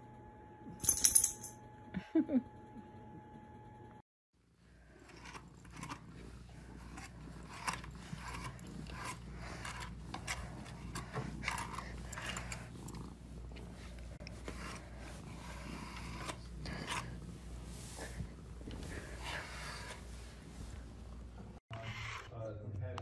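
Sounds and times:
steady low hum: 0.0s - 21.6s
brush rasping through fur: 4.8s - 20.9s.

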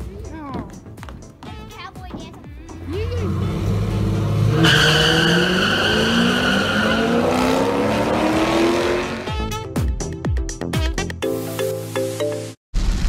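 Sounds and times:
tyres squealing: 1.4s - 9.2s
racing car engines accelerating: 2.8s - 9.4s.

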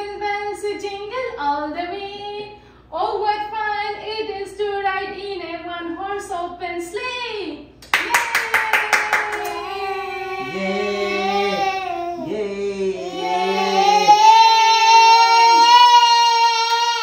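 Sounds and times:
hand claps: 7.8s - 9.7s.

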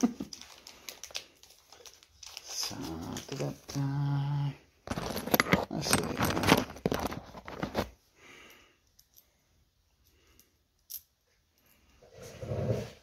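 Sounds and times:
packaging crinkling: 0.1s - 3.8s.

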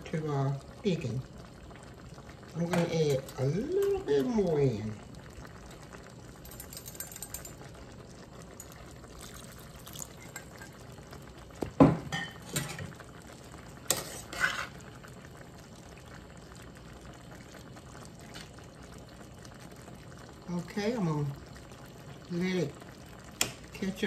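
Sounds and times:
stir fry bubbling in skillet: 0.0s - 24.0s
metal spoon scraping pan: 13.9s - 14.8s.

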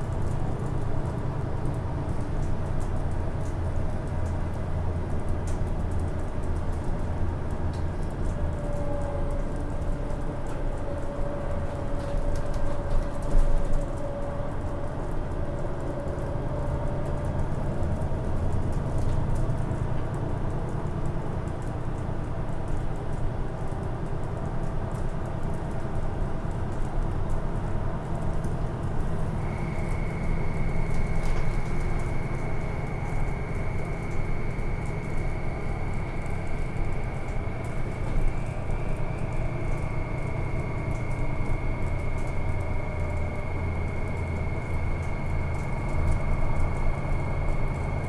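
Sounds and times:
faint whine: 29.1s - 48.0s.

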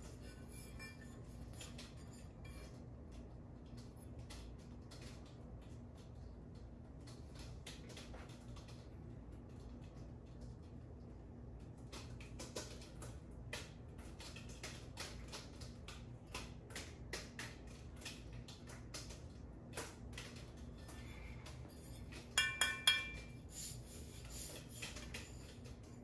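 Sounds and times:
handlebar tapping and rubbing: 0.0s - 2.7s, 21.4s - 25.9s
metal bar knocks ringing: 22.4s - 23.3s.

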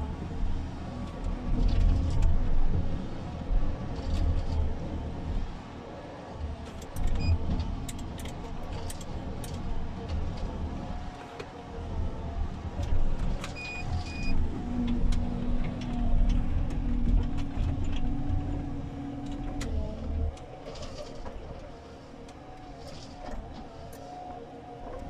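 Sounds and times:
diesel engine under load: 0.0s - 25.0s
short electronic beeps: 13.6s - 14.4s.

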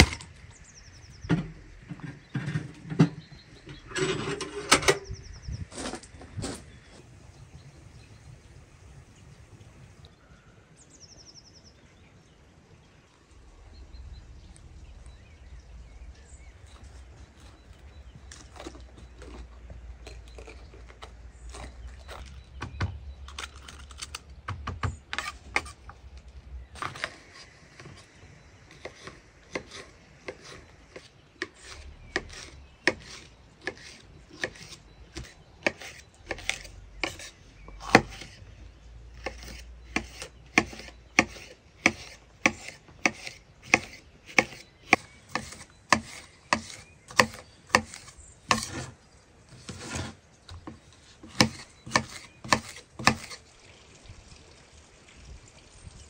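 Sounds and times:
knife chopping on wooden board: 28.8s - 38.4s, 39.2s - 48.9s, 49.6s - 53.4s.

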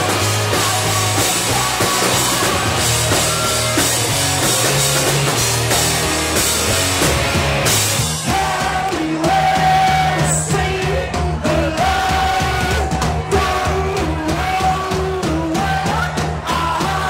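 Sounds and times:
bass guitar: 0.0s - 17.0s
drum kit: 0.0s - 17.0s
electric guitar: 0.0s - 17.0s.

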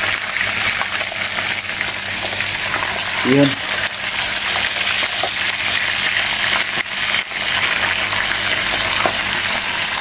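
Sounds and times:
pork sizzling in a frying pan: 0.0s - 10.0s.

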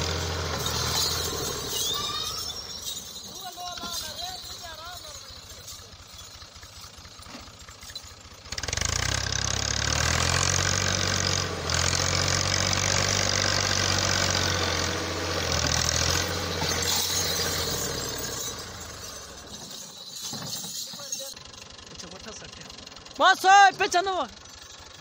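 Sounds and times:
tractor diesel engine labouring: 0.0s - 25.0s.

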